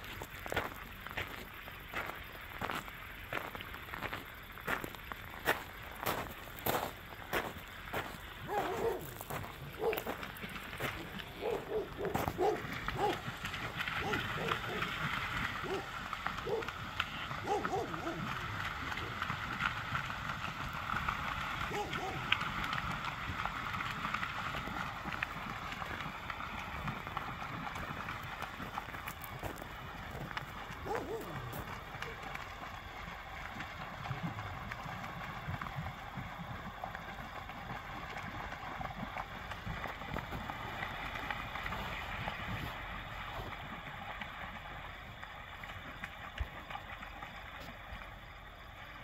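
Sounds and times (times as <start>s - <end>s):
outdoor hiss: 0.0s - 11.4s
birds splashing on water: 0.0s - 48.0s
pelicans hooting: 8.0s - 19.3s, 21.6s - 22.4s.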